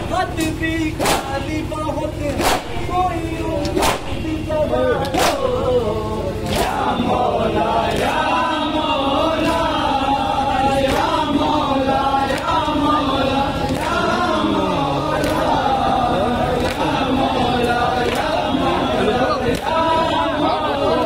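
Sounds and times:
men chanting in unison: 0:00.0 - 0:21.0
hands slapping chests: 0:02.4 - 0:02.8, 0:03.7 - 0:04.2.

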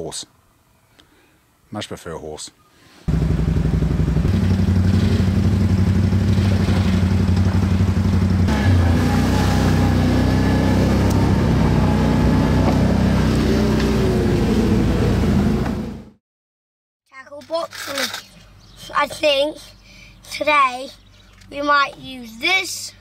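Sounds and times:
quad bike engine running: 0:03.1 - 0:16.0.

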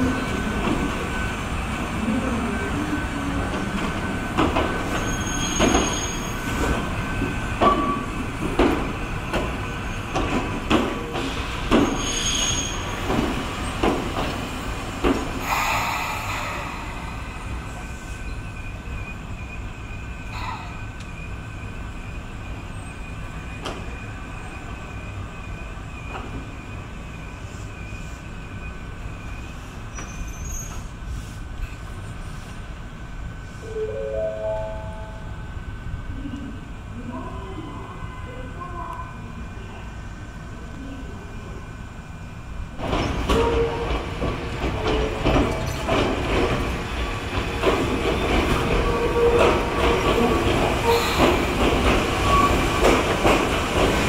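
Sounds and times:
train running rumble: 0:00.0 - 0:34.3, 0:40.0 - 0:54.0
faint high wheel squeal: 0:04.9 - 0:06.6, 0:11.8 - 0:13.0, 0:16.1 - 0:31.3
train wheels clacking over rail joints: 0:07.6 - 0:15.8, 0:42.8 - 0:54.0.

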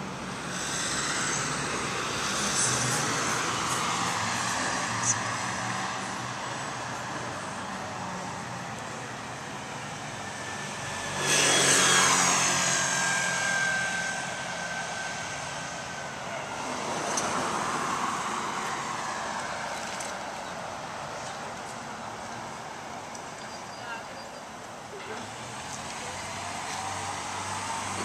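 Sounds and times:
vehicle passing with whine: 0:00.0 - 0:20.0
traffic hum: 0:00.0 - 0:28.0.

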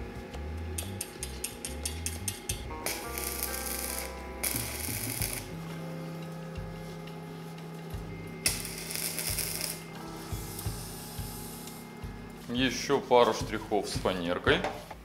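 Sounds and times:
welding arc crackling: 0:00.8 - 0:05.6, 0:08.4 - 0:11.8.

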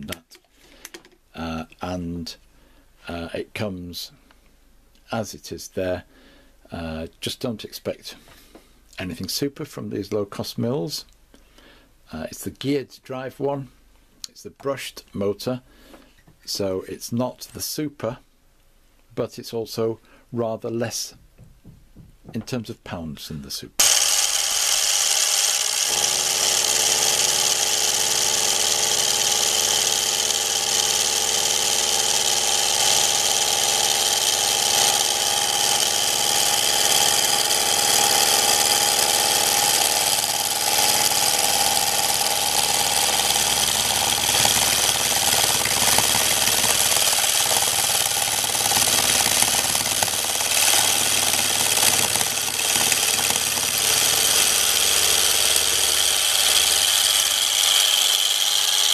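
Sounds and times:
milling machine whine: 0:23.8 - 0:58.9.

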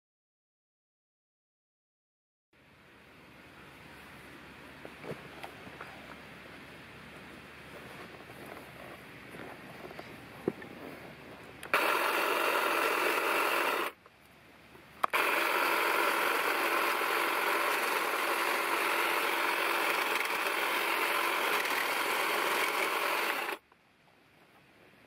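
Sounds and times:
click: 0:11.6 - 0:11.8
hedge trimmer buzzing: 0:11.6 - 0:14.0, 0:15.0 - 0:23.6.

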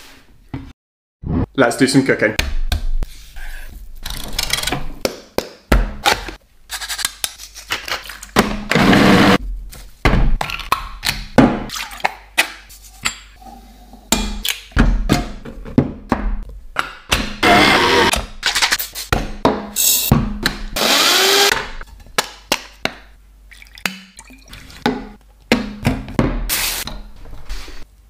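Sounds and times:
thunks and taps of kitchen items: 0:14.1 - 0:17.3, 0:24.8 - 0:27.0.

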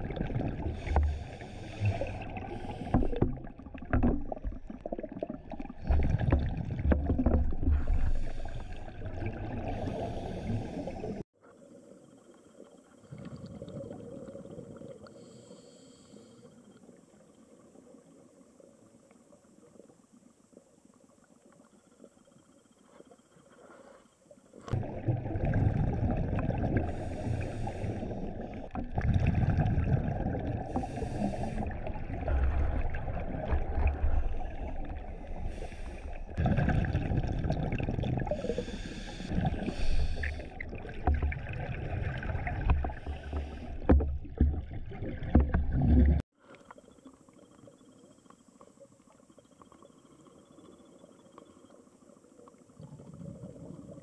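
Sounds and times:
exhaled bubbles rumbling underwater: 0:00.0 - 0:11.2, 0:13.0 - 0:15.1, 0:24.7 - 0:46.3, 0:52.5 - 0:54.0
hissy regulator inhales: 0:00.8 - 0:03.2, 0:07.7 - 0:09.0, 0:09.6 - 0:11.2, 0:15.0 - 0:16.6, 0:26.8 - 0:28.5, 0:30.6 - 0:31.8, 0:35.2 - 0:36.4, 0:38.3 - 0:40.8, 0:42.8 - 0:43.9.

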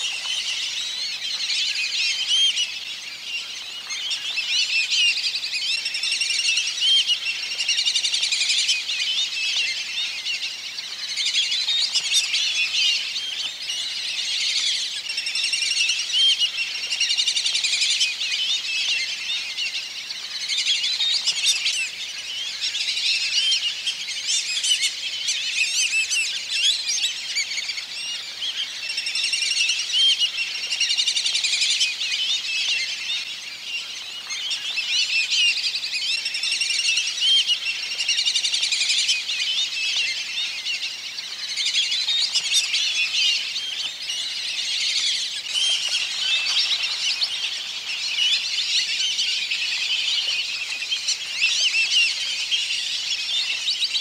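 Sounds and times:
ducks whistling: 0:41.5 - 0:53.6.

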